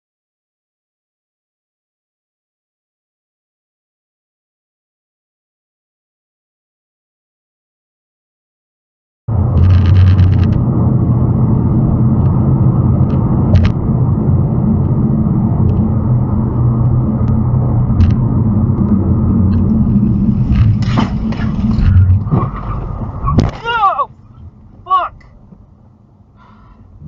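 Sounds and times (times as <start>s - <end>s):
car road and engine rumble: 9.3s - 27.0s.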